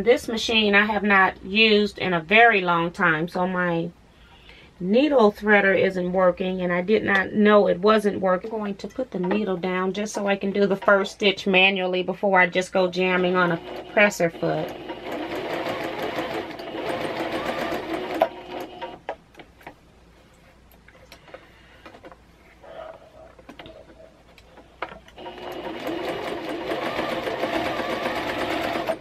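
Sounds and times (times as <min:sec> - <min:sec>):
sewing machine stitching: 0:13.2 - 0:19.0, 0:25.2 - 0:29.0.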